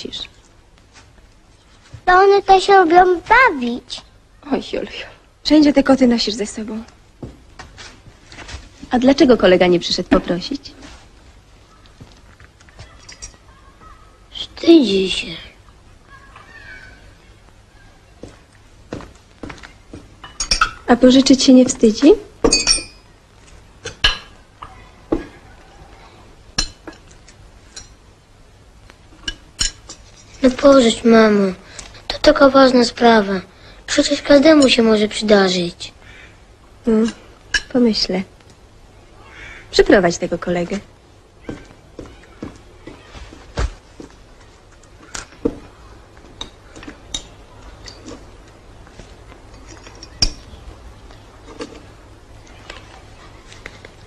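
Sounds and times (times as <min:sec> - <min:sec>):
dishes and cutlery clinking: 0:20.2 - 0:20.8, 0:22.5 - 0:23.0, 0:29.2 - 0:30.4, 0:49.5 - 0:50.5
spoon clinking on glass and dishes: 0:20.2 - 0:20.8, 0:22.5 - 0:23.0.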